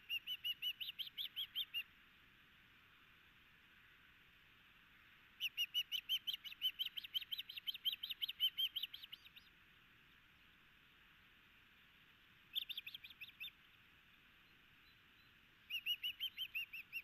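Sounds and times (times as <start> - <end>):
osprey high chirps: 14.8 - 17.0.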